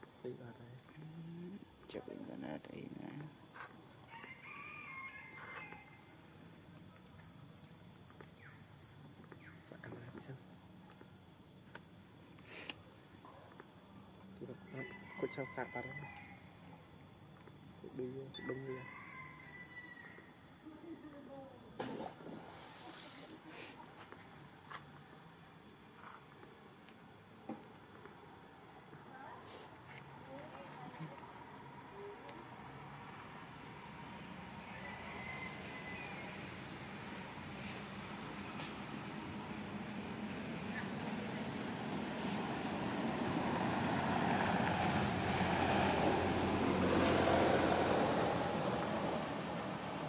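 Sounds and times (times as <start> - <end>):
insects droning: 0.0 - 50.0
vehicle passing: 39.8 - 50.0.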